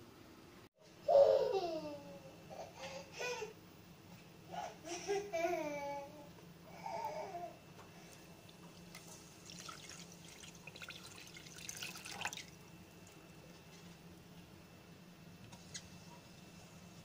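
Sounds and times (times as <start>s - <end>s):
water pouring into saucepan: 8.7s - 13.2s.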